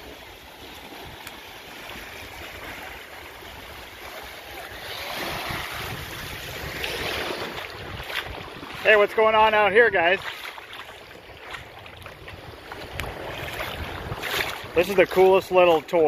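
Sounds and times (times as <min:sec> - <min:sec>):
small waves lapping on beach: 0:00.0 - 0:16.0
wind on microphone: 0:00.0 - 0:16.0.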